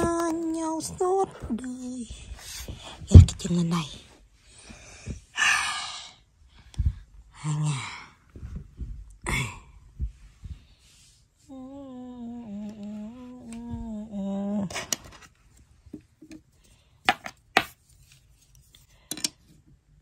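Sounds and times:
woman humming a tune: 0:11.5 - 0:14.8.

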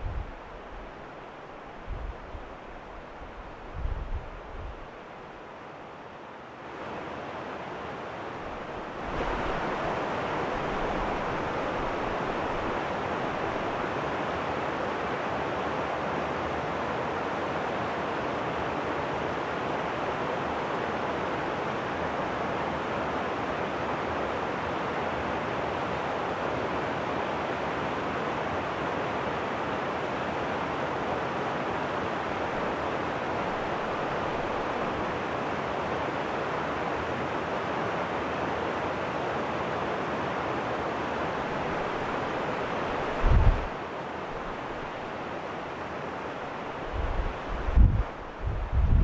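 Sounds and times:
stream water rushing over rocks: 0:06.4 - 0:48.5.

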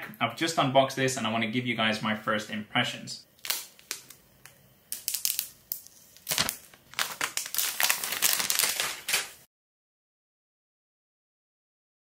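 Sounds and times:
packaging crinkling: 0:03.4 - 0:04.2, 0:04.9 - 0:09.5.

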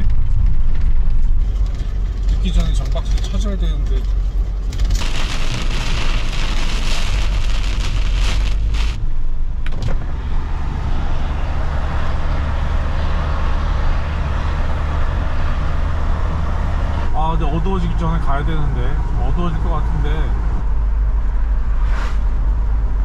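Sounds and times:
engine and road drone: 0:00.0 - 0:23.0.

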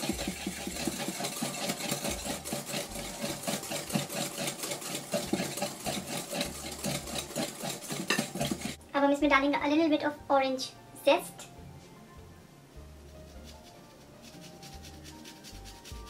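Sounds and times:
whisk strokes against glass bowl: 0:00.0 - 0:08.8, 0:13.1 - 0:16.0.

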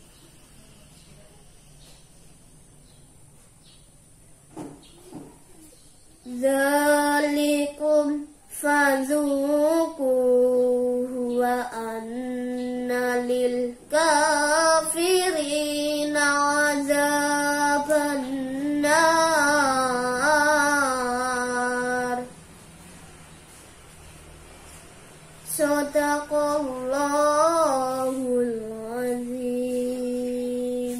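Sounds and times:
boy reciting melodically: 0:06.2 - 0:22.4, 0:25.3 - 0:30.9.

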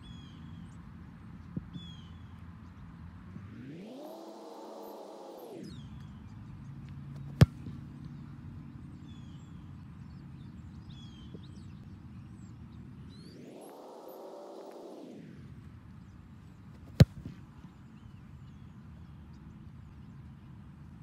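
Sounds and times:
foot kicking a football: 0:07.2 - 0:07.8, 0:16.7 - 0:17.5.

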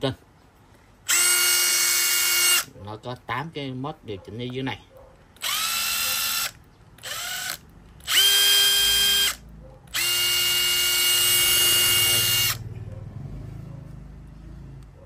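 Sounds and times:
impact driver motor whine: 0:01.1 - 0:02.7, 0:05.4 - 0:12.6.

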